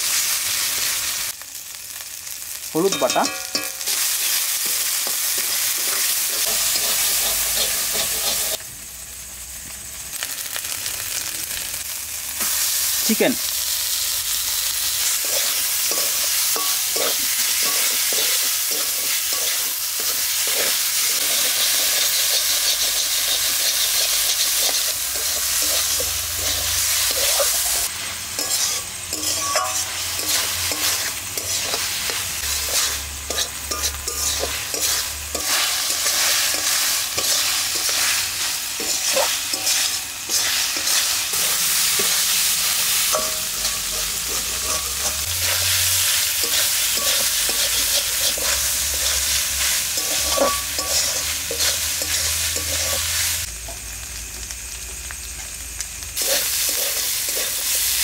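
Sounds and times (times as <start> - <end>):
food sizzling in hot oil: 0.0 - 58.0
metal spatula scraping pan: 3.0 - 8.6, 15.2 - 53.2.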